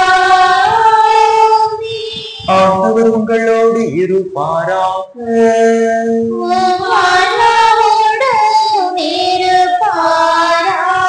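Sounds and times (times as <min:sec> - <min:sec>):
congregation singing chant: 0:00.0 - 0:03.6, 0:06.3 - 0:11.0
man singing low note: 0:02.4 - 0:06.7.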